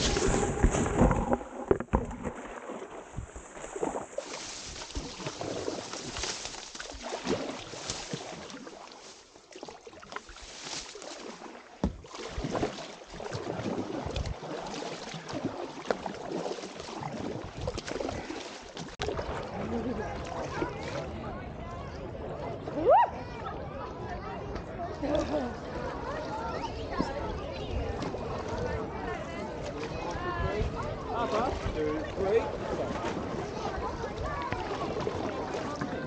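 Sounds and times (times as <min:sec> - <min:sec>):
paddle knocks: 0:00.0 - 0:07.5, 0:11.8 - 0:12.8
reeds scraping against boat: 0:00.0 - 0:19.3
paddle splashes: 0:00.0 - 0:21.4, 0:24.6 - 0:36.0.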